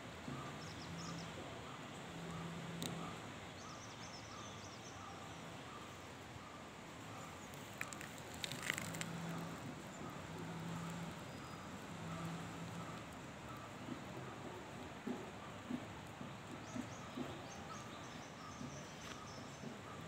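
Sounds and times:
clicks and crackles: 0:02.7 - 0:03.0, 0:07.5 - 0:11.2.

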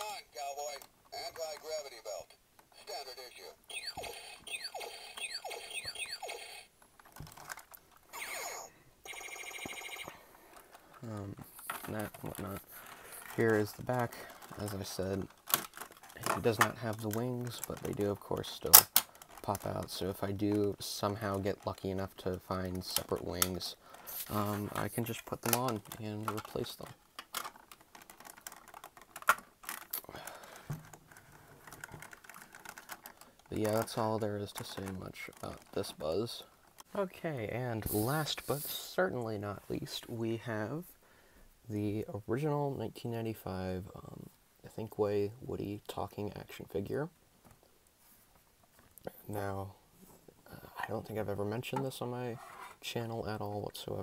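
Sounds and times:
plastic parts clicking: 0:06.8 - 0:08.2, 0:10.5 - 0:36.9.

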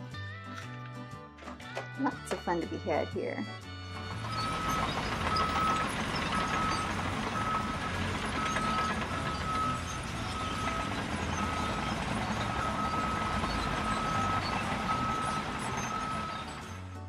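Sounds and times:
truck engine rumble: 0:00.1 - 0:17.0
reversing alarm beeping: 0:04.0 - 0:16.8.

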